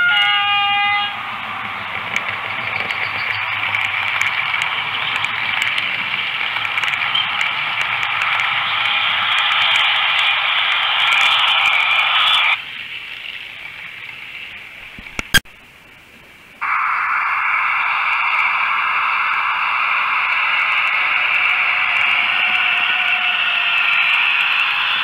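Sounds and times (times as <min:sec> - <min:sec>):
static-like hiss: 0:01.2 - 0:25.0
sharp click: 0:14.8 - 0:15.5.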